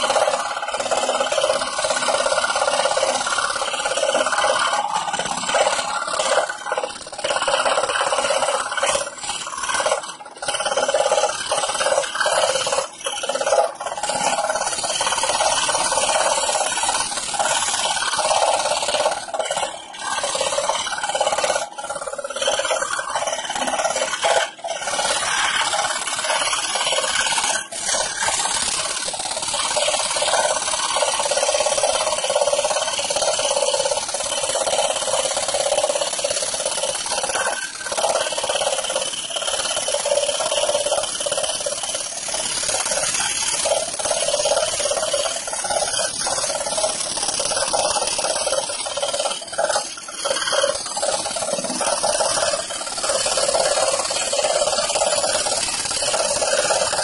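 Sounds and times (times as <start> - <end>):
scroll saw cutting plywood: 0.0 - 57.0.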